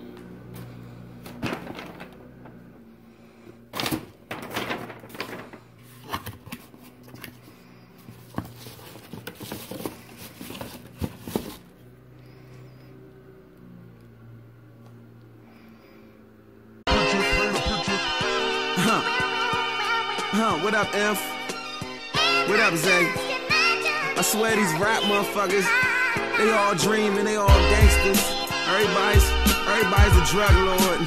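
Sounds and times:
cardboard box and paper rustling: 0:01.2 - 0:02.7, 0:03.7 - 0:11.9.

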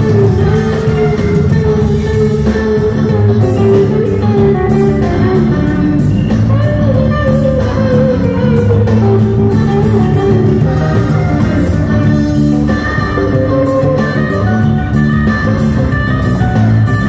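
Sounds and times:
live band playing: 0:00.0 - 0:17.0.

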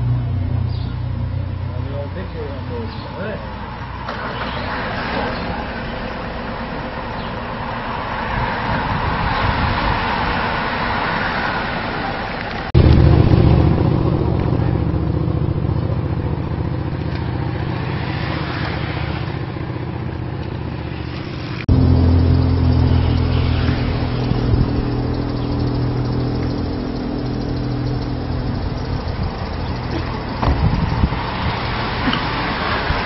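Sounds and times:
road noise: 0:00.0 - 0:33.0
vehicle engine running: 0:00.0 - 0:33.0.

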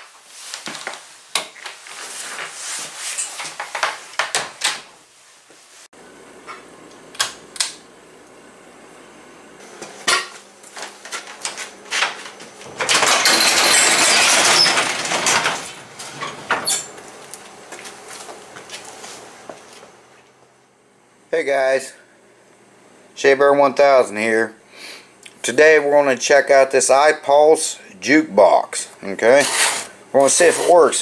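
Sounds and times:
knocks and footsteps: 0:09.6 - 0:13.3, 0:14.3 - 0:20.6
garage door rattling open: 0:12.6 - 0:16.9.

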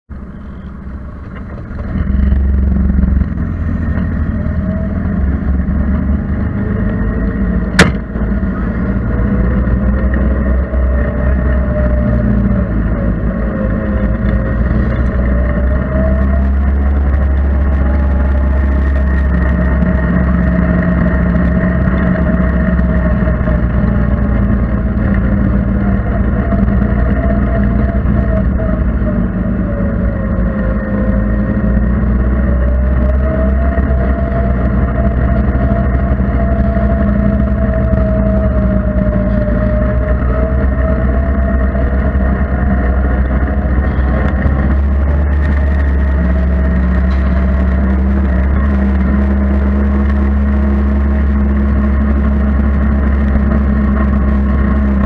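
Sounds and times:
off-road vehicle engine running: 0:00.1 - 0:55.0
sharp knock: 0:07.8 - 0:08.2.

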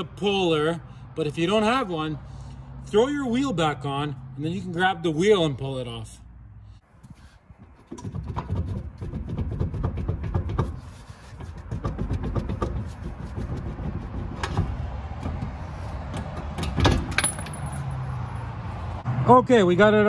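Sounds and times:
metal clunks and scraping: 0:07.0 - 0:18.6
loud metal clunk: 0:14.4 - 0:17.8.

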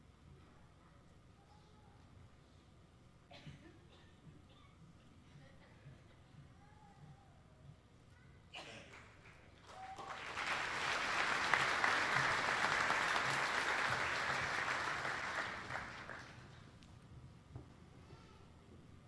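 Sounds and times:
audience applauding: 0:08.9 - 0:16.6.

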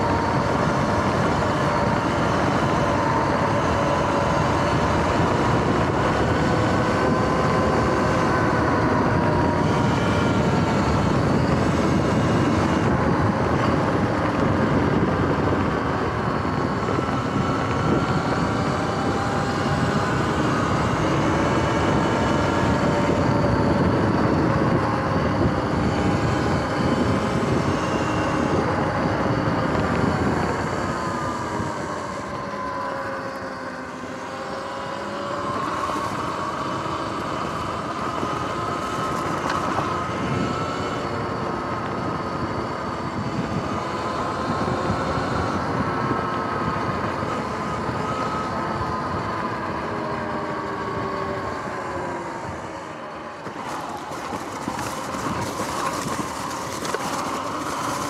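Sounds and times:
electric motor and belt whine: 0:00.0 - 0:58.0
wind rush: 0:00.0 - 0:58.0
tyre noise: 0:53.4 - 0:58.0.

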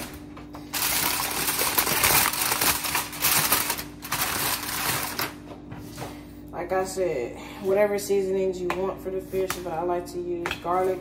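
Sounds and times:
aluminium foil crinkling: 0:00.0 - 0:05.4.

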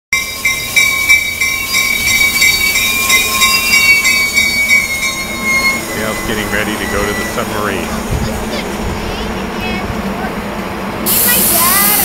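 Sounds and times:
train wheels squealing: 0:00.2 - 0:07.9.

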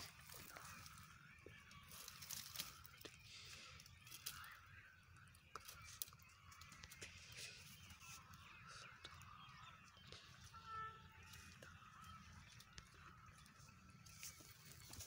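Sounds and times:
footsteps on dry ground: 0:00.0 - 0:03.5, 0:10.0 - 0:15.0
distant birds calling: 0:00.0 - 0:15.0.

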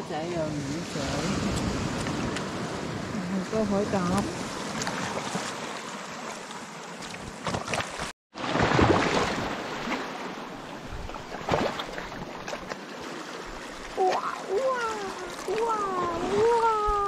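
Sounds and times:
sea water washing among rocks: 0:03.9 - 0:17.0.

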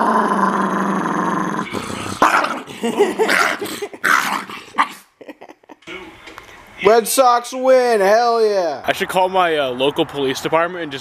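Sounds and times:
small dog growling: 0:00.0 - 0:05.0
dog snarling barks: 0:01.5 - 0:05.1.

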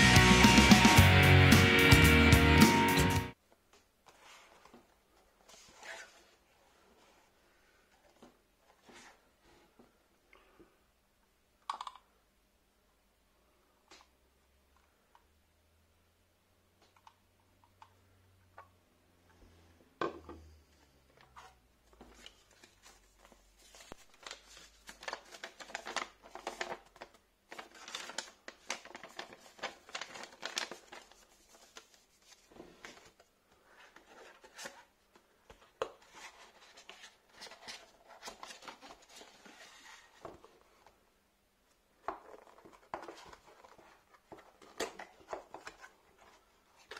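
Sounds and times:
paper leaflet rustling: 0:21.4 - 0:34.9.

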